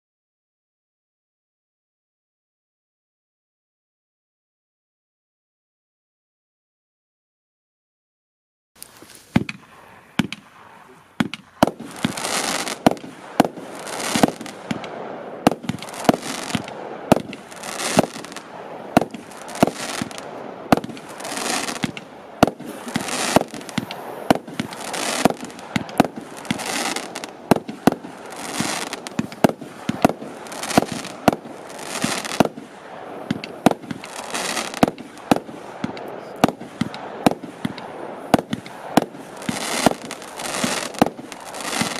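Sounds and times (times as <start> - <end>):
crackling firework shell hissing: 8.8 - 41.9
firework launch and burst reports: 9.3 - 41.9.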